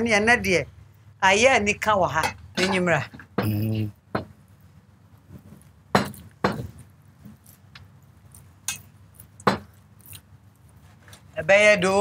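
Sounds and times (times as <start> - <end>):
kitchenware clinking and knocking: 2.2 - 3.5.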